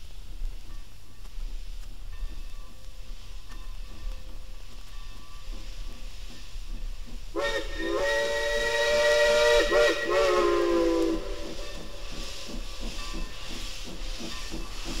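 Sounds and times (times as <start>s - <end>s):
steady steam hiss: 0.0s - 15.0s
steam locomotive whistle: 7.4s - 12.3s.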